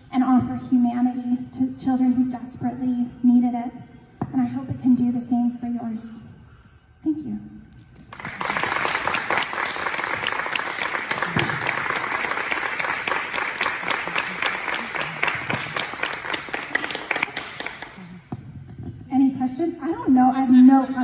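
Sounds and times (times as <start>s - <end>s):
audience applauding: 8.0s - 18.1s.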